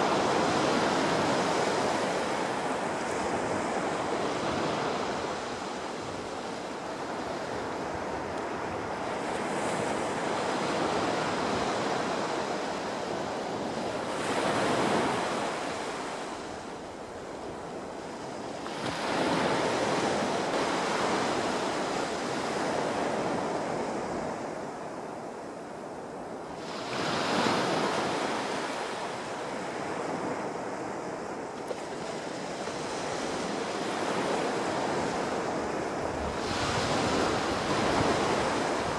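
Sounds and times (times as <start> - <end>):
small waves breaking on sand: 0.0 - 25.3, 26.4 - 38.9.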